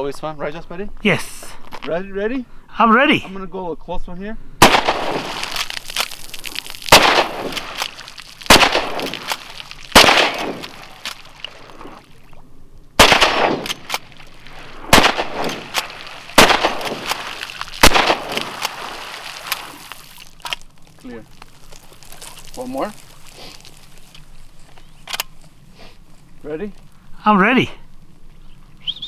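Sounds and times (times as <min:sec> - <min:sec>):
rifle shots: 0:04.6 - 0:05.5, 0:06.9 - 0:07.9, 0:08.5 - 0:11.1, 0:13.0 - 0:18.9.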